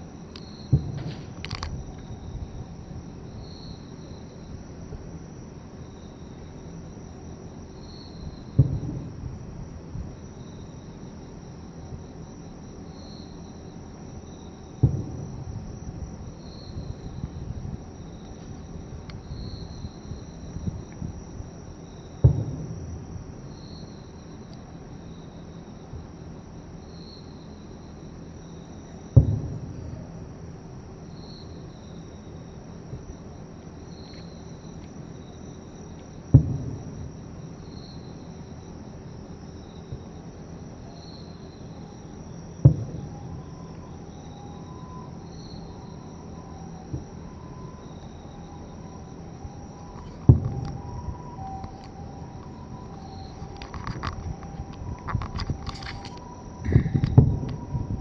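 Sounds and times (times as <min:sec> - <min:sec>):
insects chirping: 0:00.0 - 0:58.0
distant firework booms: 0:00.7 - 0:01.9, 0:08.5 - 0:09.5, 0:14.8 - 0:17.7, 0:22.2 - 0:23.1, 0:29.2 - 0:30.2, 0:36.3 - 0:37.2, 0:42.6 - 0:43.5, 0:50.2 - 0:51.4, 0:56.6 - 0:58.0.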